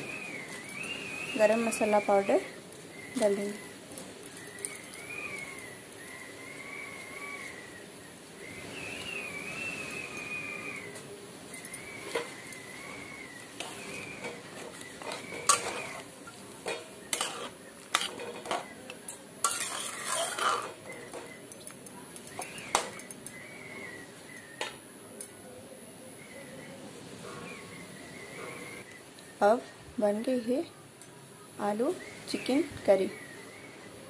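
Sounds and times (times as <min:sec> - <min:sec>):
wet stirring: 0:13.6 - 0:21.4
metal spoon scraping pot: 0:13.6 - 0:21.6.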